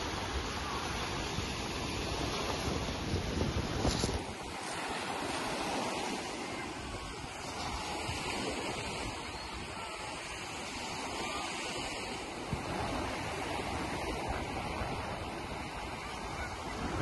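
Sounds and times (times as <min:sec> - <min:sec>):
wind buffeting microphone: 0:00.0 - 0:17.0
waves breaking on shingle: 0:01.1 - 0:06.6.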